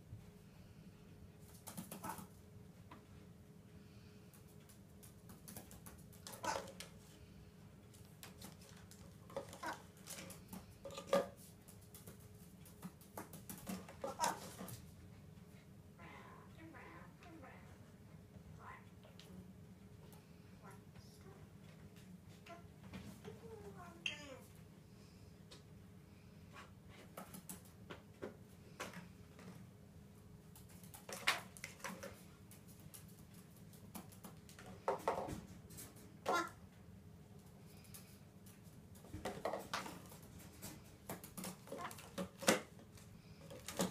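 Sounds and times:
parrot feet and beak tapping: 1.4s - 3.1s, 4.3s - 7.1s, 7.8s - 14.9s, 26.9s - 29.6s, 30.5s - 36.6s, 37.4s - 43.9s.

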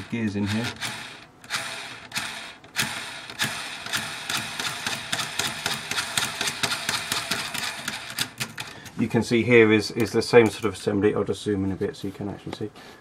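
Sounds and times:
small gears clicking and ticking: 0.0s - 8.8s.

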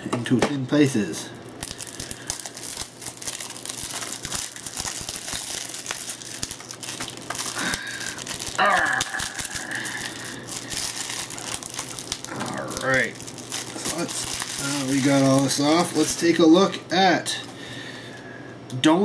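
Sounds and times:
plastic wrap crinkling: 1.5s - 16.6s.

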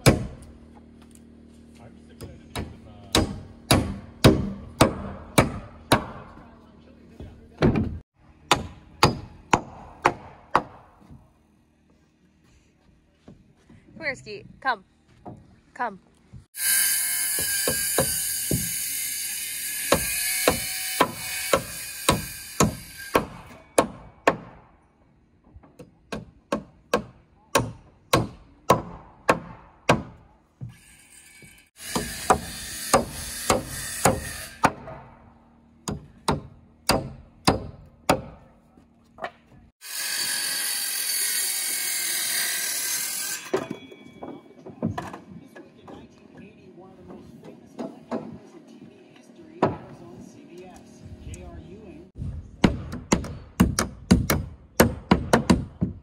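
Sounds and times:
hammer nailing wood: 0.0s - 0.4s, 2.2s - 6.4s, 7.6s - 10.9s, 17.4s - 18.8s, 19.9s - 24.7s, 25.7s - 30.8s, 31.9s - 35.0s, 35.8s - 38.4s, 52.6s - 56.0s
power tool running: 16.6s - 23.2s, 30.7s - 34.6s, 39.8s - 43.5s.

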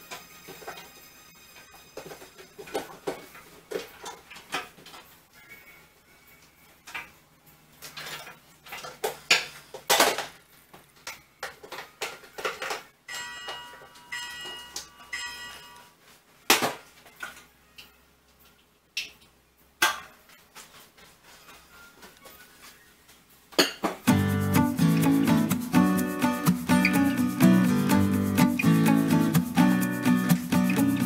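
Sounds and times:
kitchen items clattering on tiles: 0.0s - 5.2s, 6.8s - 15.8s, 23.5s - 24.1s.

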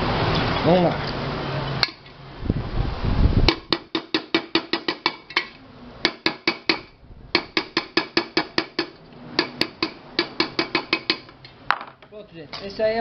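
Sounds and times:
hammer tapping metal rim: 3.5s - 11.4s.

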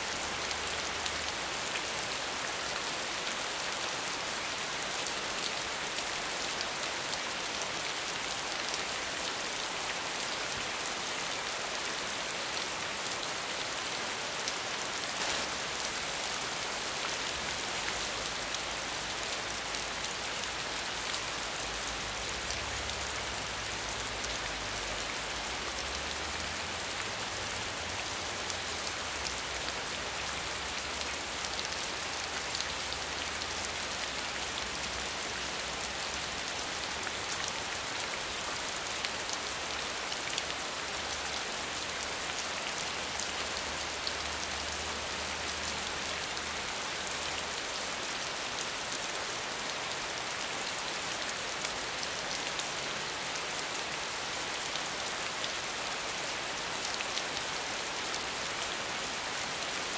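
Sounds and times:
rain hissing: 15.0s - 19.1s.

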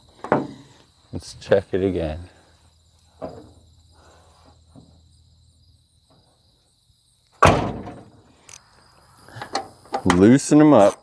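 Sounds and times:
car door slamming: 7.4s - 8.1s.

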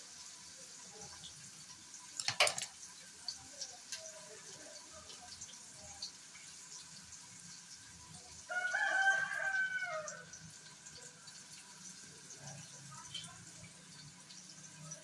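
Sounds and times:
rooster crowing: 8.5s - 10.3s.

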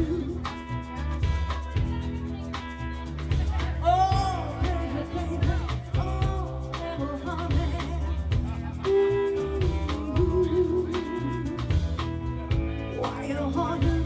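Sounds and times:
woman singing: 0.0s - 1.6s, 3.4s - 14.0s
drum kit: 0.0s - 14.0s
electric guitar: 0.0s - 14.0s.

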